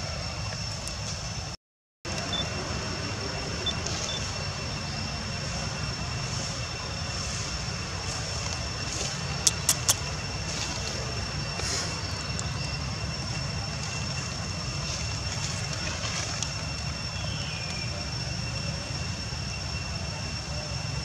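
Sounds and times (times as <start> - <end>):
faint high whine: 0.0 - 21.0
quick clicks: 9.4 - 10.0.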